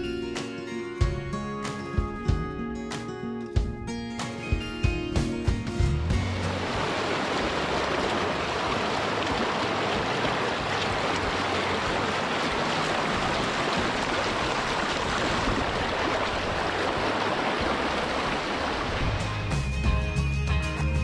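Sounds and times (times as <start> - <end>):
river water rushing over rocks: 6.4 - 19.2.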